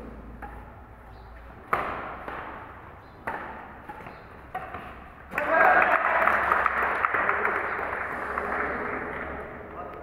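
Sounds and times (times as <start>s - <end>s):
racket hitting shuttlecock: 0.0s - 5.7s.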